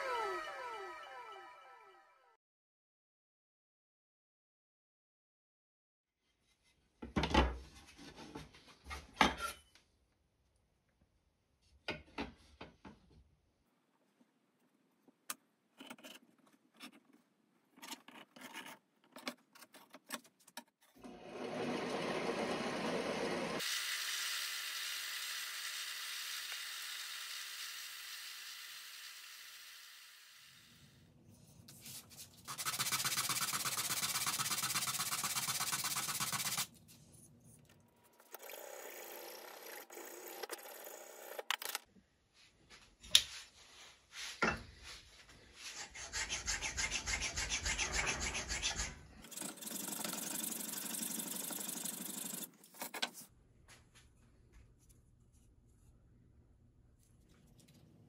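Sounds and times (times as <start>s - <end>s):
wood rasping on sanding disc: 32.5s - 36.7s.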